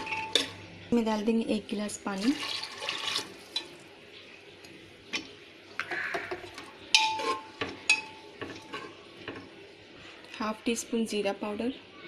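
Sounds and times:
metal spoon clinking pot: 0:00.0 - 0:00.6, 0:06.2 - 0:09.5.

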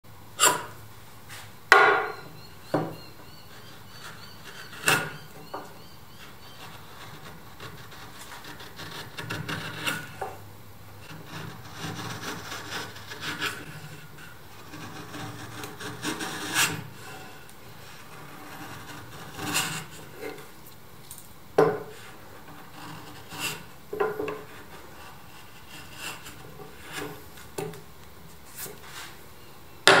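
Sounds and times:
chisel scraping through wood: 0:03.5 - 0:10.4, 0:11.0 - 0:20.4, 0:21.9 - 0:27.2.

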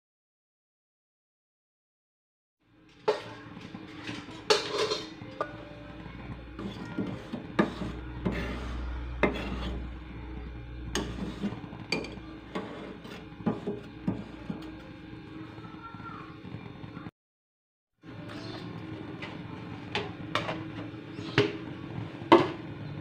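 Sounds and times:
metal ladle scraping pot: 0:03.0 - 0:05.6, 0:06.6 - 0:14.8
low steady hum: 0:04.6 - 0:15.4.

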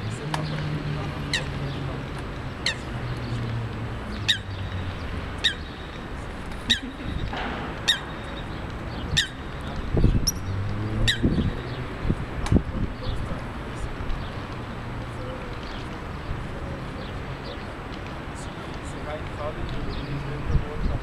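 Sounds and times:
bird giving sharp high calls: 0:05.4 - 0:05.9, 0:07.8 - 0:08.5, 0:09.1 - 0:09.5, 0:11.1 - 0:11.5
low thump: 0:07.3 - 0:08.0.

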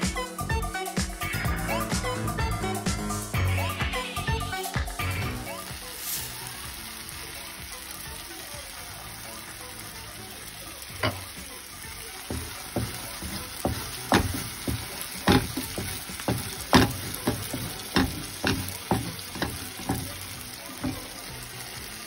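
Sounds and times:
faint sizzle: 0:00.0 - 0:22.0
wooden spatula scraping a pan: 0:12.2 - 0:21.2.

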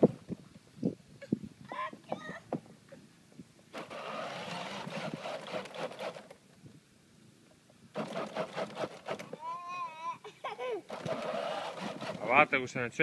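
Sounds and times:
toy car motor rattling whir: 0:03.7 - 0:06.4, 0:07.9 - 0:09.5, 0:10.9 - 0:12.5.

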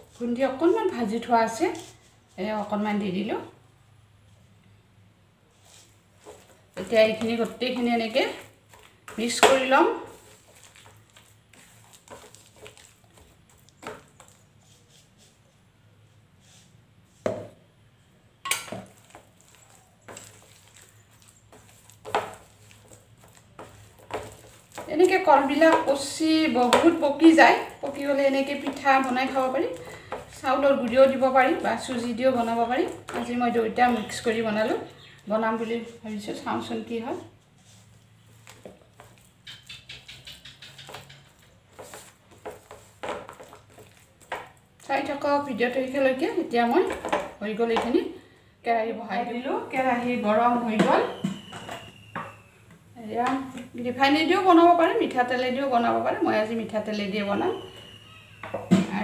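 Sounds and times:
hands kneading sticky dough: 0:05.5 - 0:17.2, 0:18.8 - 0:48.0.

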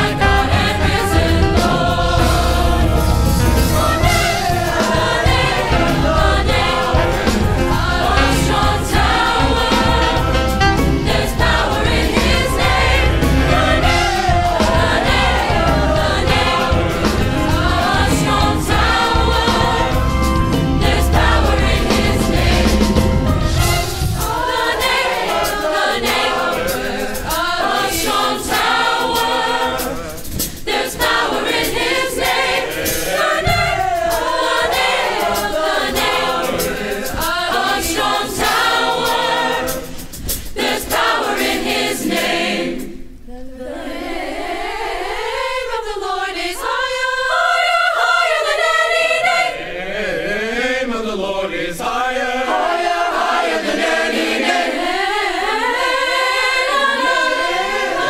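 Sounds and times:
band accompaniment: 0:00.0 - 0:43.0
choir singing in harmony: 0:00.0 - 0:58.0.

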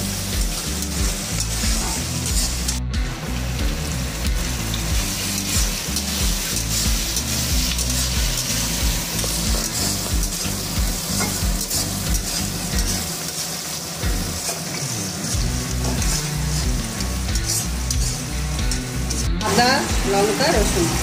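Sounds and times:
vegetables sizzling in oil: 0:00.0 - 0:21.0
metal spatula scraping pan: 0:11.1 - 0:13.4, 0:14.4 - 0:19.3.

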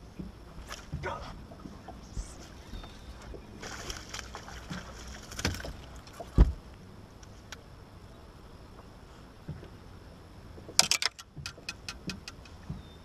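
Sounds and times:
water splashing: 0:00.0 - 0:06.7
wind: 0:00.0 - 0:13.0
heavy thump on boat deck: 0:05.4 - 0:06.6.

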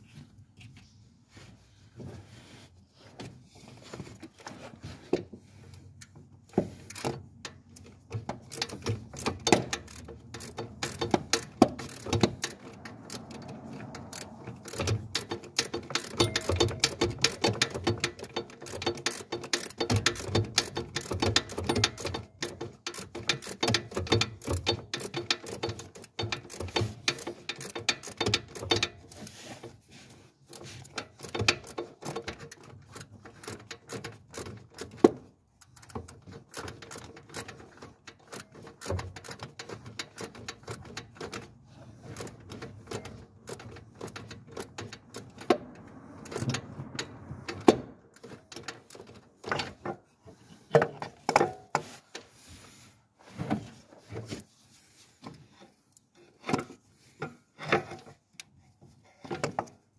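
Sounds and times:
ratchet wrench clicking: 0:06.9 - 0:29.4, 0:30.5 - 0:35.0, 0:35.6 - 0:49.2.

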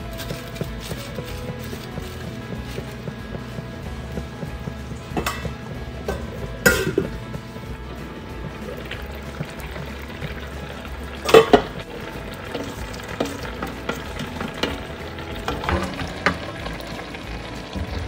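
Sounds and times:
wooden spoon tapping and scraping: 0:00.0 - 0:16.9
broth simmering and bubbling: 0:00.0 - 0:18.0.

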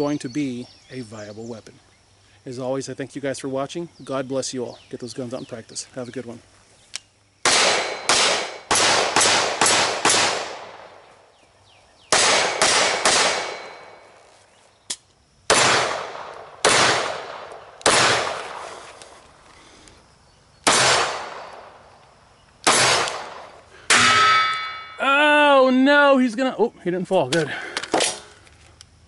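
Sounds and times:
pistol shots echoing: 0:07.4 - 0:11.0, 0:12.1 - 0:14.0, 0:15.5 - 0:18.6, 0:20.6 - 0:21.8, 0:22.6 - 0:25.0.

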